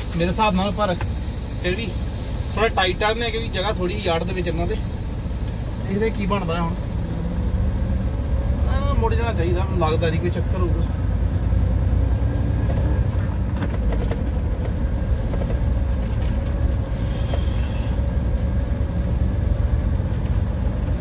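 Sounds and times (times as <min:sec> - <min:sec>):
diesel engine rumbling: 0:00.0 - 0:21.0
brief high hiss: 0:16.9 - 0:18.0.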